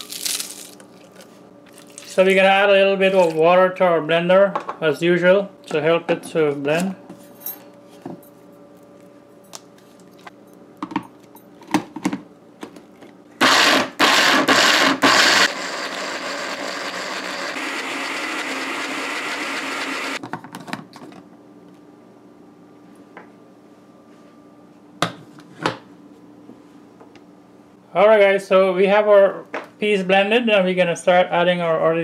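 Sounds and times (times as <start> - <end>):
blender grinding: 13.4 - 20.2.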